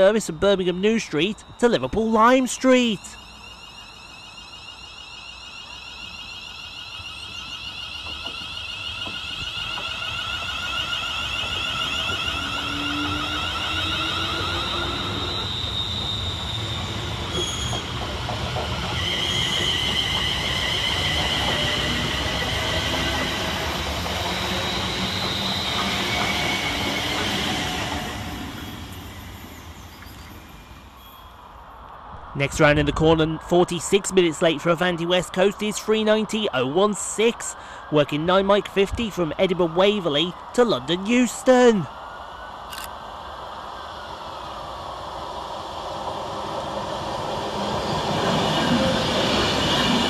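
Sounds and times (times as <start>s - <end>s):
electric train traction whine: 0.0s - 32.2s, 38.8s - 50.0s
wheels rumbling on rails: 3.0s - 33.6s.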